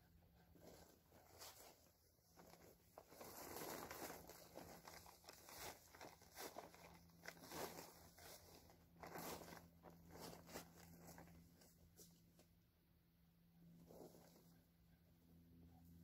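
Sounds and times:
plastic tarps rustling: 0.6s - 12.1s.

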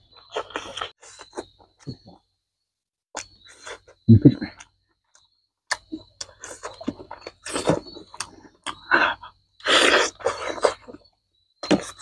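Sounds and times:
wet chewing: 4.6s - 12.0s
lip smacks: 5.7s - 6.8s.

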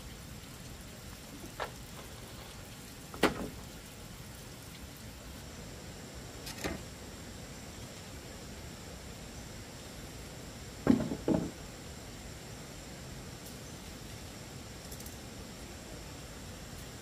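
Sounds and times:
faint steady hiss: 0.0s - 17.0s
bamboo poles knocking: 10.8s - 11.6s.

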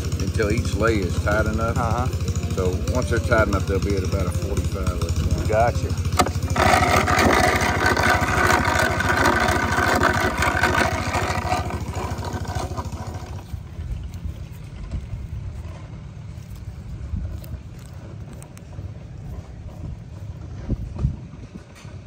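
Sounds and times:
high whirring: 0.0s - 15.6s
engine idling: 0.0s - 22.0s.

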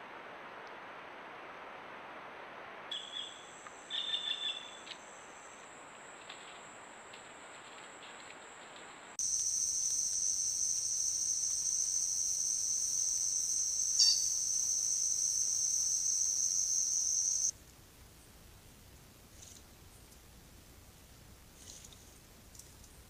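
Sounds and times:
high-pitched insect drone: 9.2s - 17.5s.

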